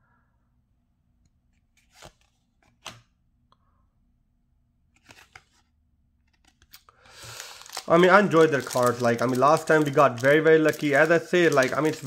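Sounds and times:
trading cards flicked by hand: 1.8s - 3.1s.

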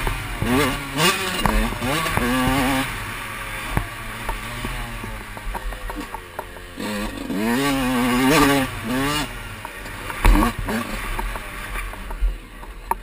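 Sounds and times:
motorbike engine revving: 0.0s - 13.0s
bike clicks and rattles: 3.6s - 7.3s, 9.4s - 13.0s.

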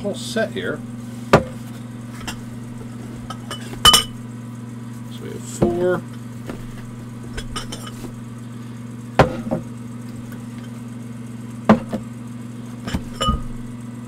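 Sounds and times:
steady low hum: 0.0s - 14.0s
glassware clinking: 3.3s - 4.2s, 7.4s - 8.0s, 12.9s - 13.6s.

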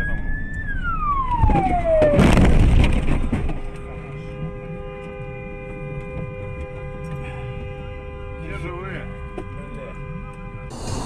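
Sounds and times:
road noise: 0.0s - 11.0s
car crash crunch: 1.3s - 3.8s.

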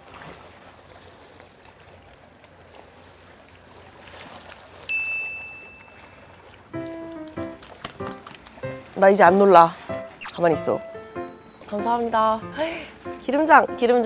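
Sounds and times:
shrimp being chewed: 0.8s - 2.6s, 3.4s - 4.7s
bright chime ding: 4.9s - 6.2s, 10.0s - 14.0s.

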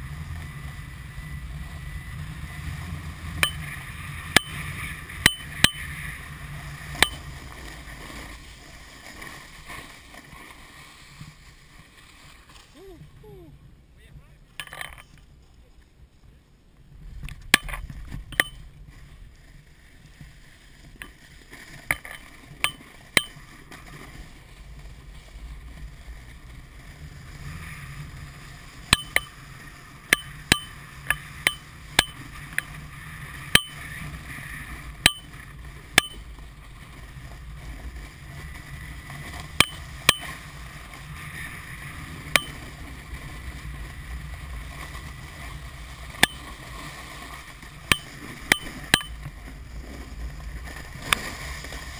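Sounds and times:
skis riding down snow: 0.0s - 51.9s
sharp ringing clicks: 3.4s - 3.7s, 5.2s - 5.9s, 17.6s - 18.6s, 21.9s - 23.4s, 28.9s - 29.4s, 30.1s - 32.7s, 33.5s - 33.8s, 35.0s - 35.4s, 36.0s - 36.2s, 39.6s - 40.4s, 42.4s - 42.6s, 46.2s - 46.5s, 47.9s - 49.2s.

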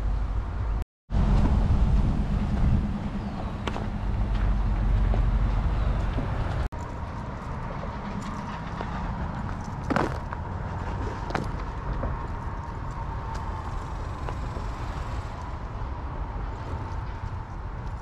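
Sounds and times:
wind noise on microphone: 0.0s - 18.0s
footsteps on dirt trail: 4.2s - 13.5s.

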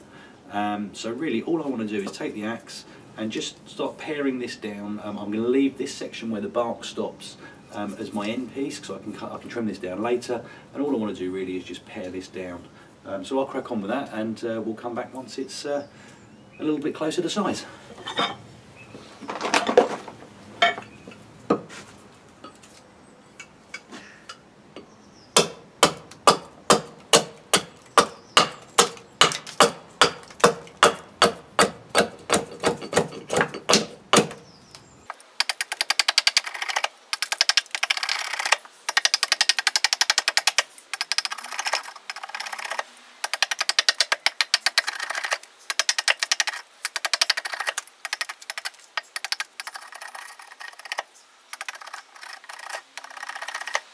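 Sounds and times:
axe chopping wood: 25.4s - 34.4s
rapid thin clatter of ticks: 35.2s - 53.9s.

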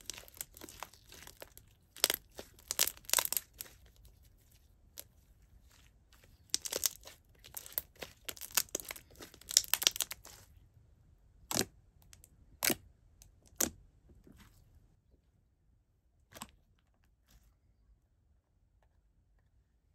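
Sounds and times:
slime clicking and popping: 0.0s - 3.8s, 6.5s - 10.4s, 11.4s - 12.8s.

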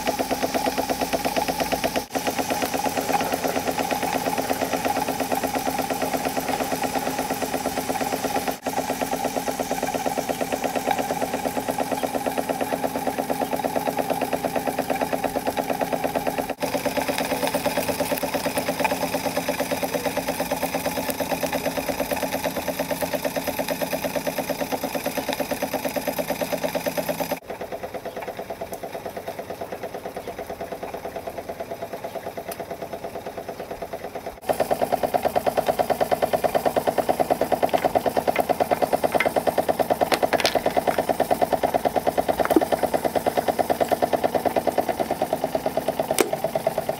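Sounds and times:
model steam engine running: 0.0s - 46.9s.

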